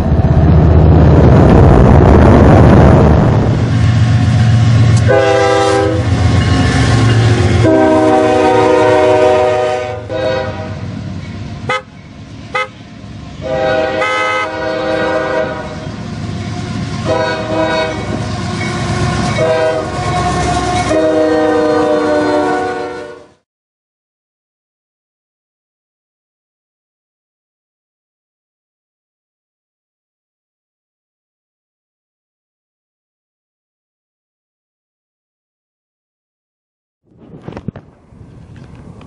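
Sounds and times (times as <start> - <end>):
locomotive engine and wheel noise: 0.0 - 22.2, 37.1 - 39.0
train air horn blasts: 4.8 - 6.5, 7.1 - 10.9, 11.6 - 11.9, 12.5 - 12.8, 13.4 - 15.9, 16.5 - 23.4.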